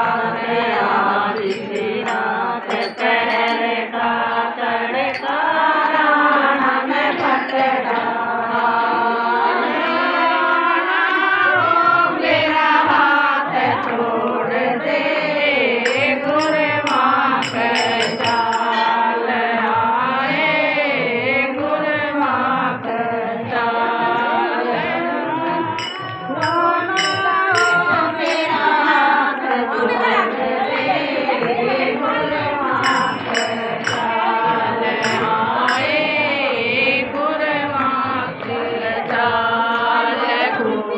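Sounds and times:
women singing together: 0.0s - 40.9s
bright rhythmic ticking: 1.3s - 4.5s, 15.9s - 19.0s, 25.8s - 28.7s, 32.8s - 36.2s
hand clapping: 1.4s - 3.7s, 15.9s - 19.0s, 25.8s - 28.8s, 32.8s - 36.2s.

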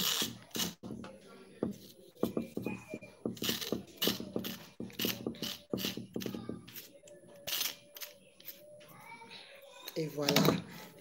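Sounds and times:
knife scraping cucumber skin: 0.0s - 0.8s, 3.4s - 8.6s.

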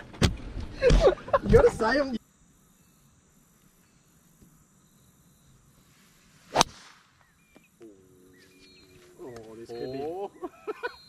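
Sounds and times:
golf club swish: 6.4s - 7.0s
golf club striking ball: 6.5s - 7.0s.

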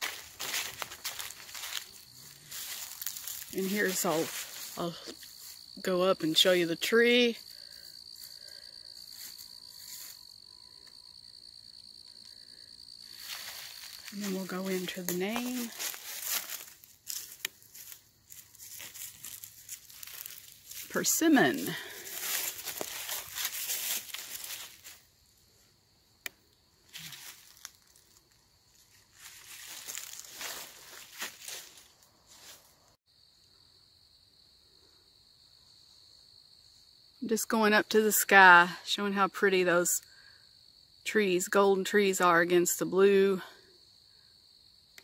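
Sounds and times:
footsteps crunching dry leaves: 0.0s - 5.9s, 7.4s - 10.4s, 13.0s - 25.1s, 26.9s - 32.7s
crickets trilling: 0.0s - 45.0s.

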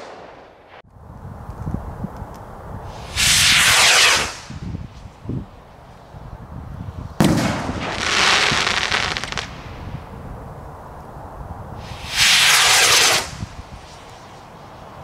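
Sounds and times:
crackling hiss of burning stars: 0.0s - 15.0s
rocket hissing whoosh: 2.8s - 5.5s, 7.1s - 10.2s, 11.7s - 15.0s
firework bang: 3.1s - 4.8s, 7.2s - 9.9s, 11.9s - 13.6s.

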